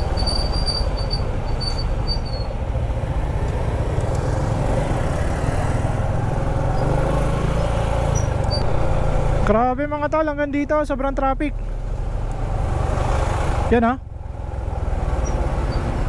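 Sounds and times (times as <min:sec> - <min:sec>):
high squeal: 0:00.0 - 0:02.6
motorcycle engine rumbling: 0:00.0 - 0:16.0
traffic noise: 0:00.0 - 0:16.0.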